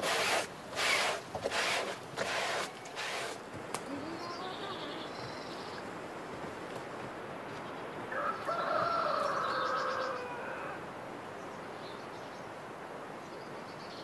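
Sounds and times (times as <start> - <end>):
small birds chirping: 2.5 - 6.3
rooster crowing: 8.1 - 10.9.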